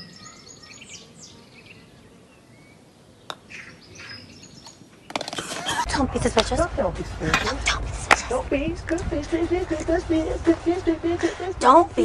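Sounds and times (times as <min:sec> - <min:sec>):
small birds chirping: 0:00.0 - 0:05.9.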